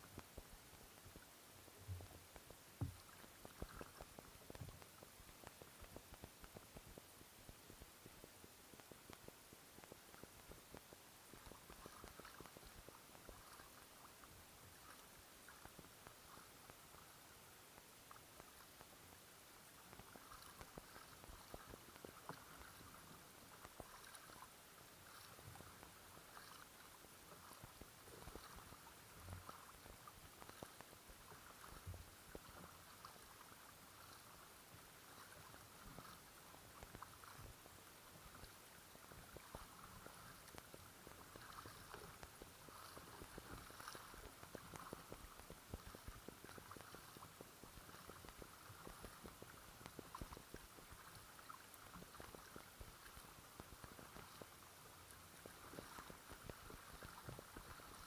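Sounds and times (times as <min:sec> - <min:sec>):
water trickling along hull: 0:00.0 - 0:58.0
paddle splashing in water: 0:11.4 - 0:16.5, 0:19.9 - 0:58.0.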